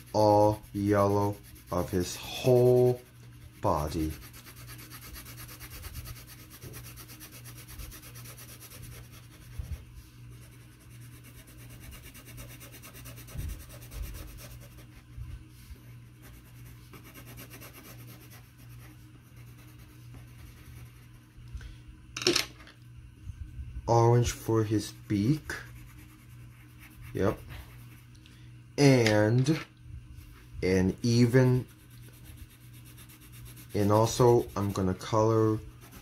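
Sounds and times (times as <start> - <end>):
coloured pencil shading on paper: 0.0 - 21.2, 24.3 - 28.1, 31.0 - 36.0.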